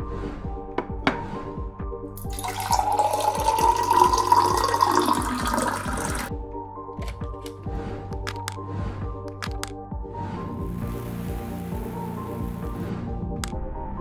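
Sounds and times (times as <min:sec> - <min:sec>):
background music with steady beat: 0:00.0 - 0:14.0
water pouring into a glass mug: 0:02.2 - 0:06.3.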